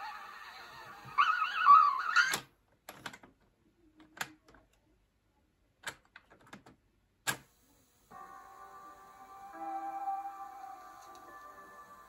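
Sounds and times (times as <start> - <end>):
fingers clicking on plastic parts: 5.8 - 7.4.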